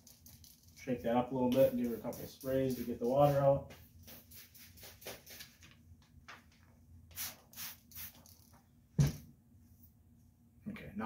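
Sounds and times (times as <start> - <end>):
spray bottle misting: 1.4 - 5.6, 7.1 - 8.5.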